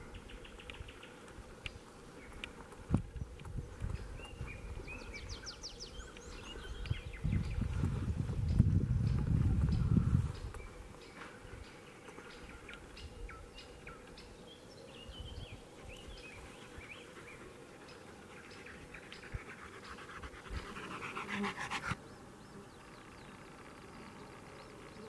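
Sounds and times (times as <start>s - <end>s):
dog panting: 16.8s - 22.0s.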